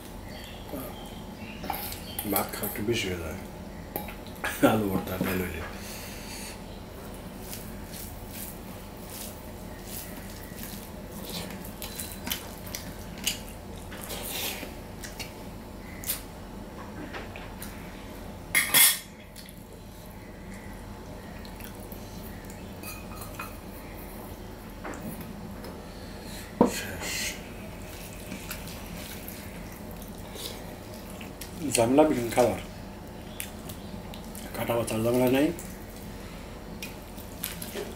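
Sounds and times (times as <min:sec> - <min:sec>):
hand mixing food on steel plate: 0:07.3 - 0:15.2.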